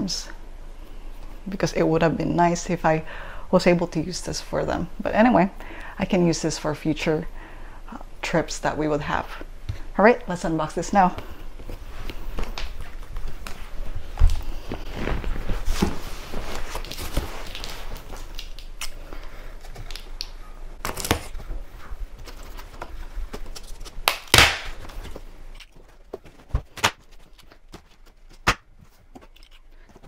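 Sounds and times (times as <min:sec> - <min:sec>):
cardboard scraping and rustling: 0:14.5 - 0:17.9
packing tape ripping off cardboard: 0:20.8 - 0:21.4, 0:23.4 - 0:25.7.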